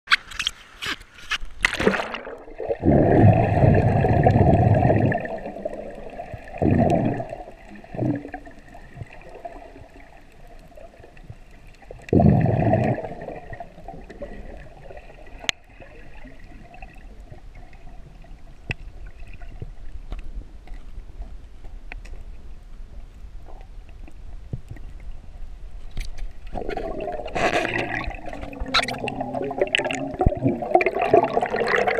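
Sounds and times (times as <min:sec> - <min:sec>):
water rushing around camera: 0:00.1 - 0:31.9.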